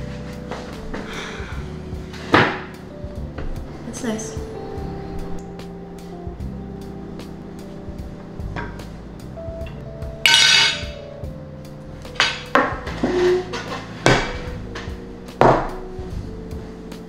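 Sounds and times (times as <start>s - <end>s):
quiet background music: 0.0s - 17.0s
dishes clattering on a table: 10.3s - 11.0s
plate and bowl knocking down: 10.3s - 11.0s.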